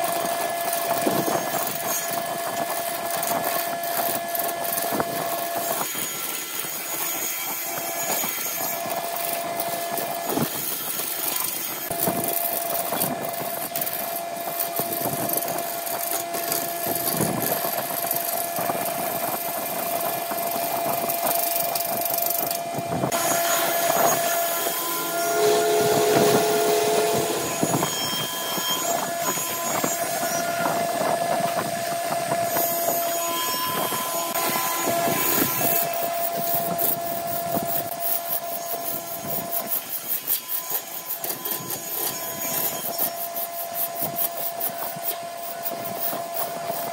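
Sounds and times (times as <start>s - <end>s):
turning tool scraping wood: 0.7s - 46.9s
lathe motor hum: 19.8s - 39.5s.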